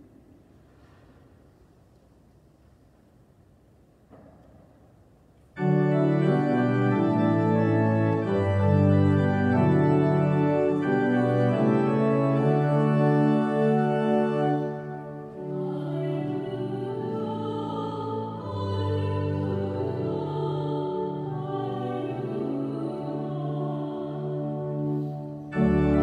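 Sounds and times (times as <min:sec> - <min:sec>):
church organ playing held chords: 0:05.5 - 0:26.0.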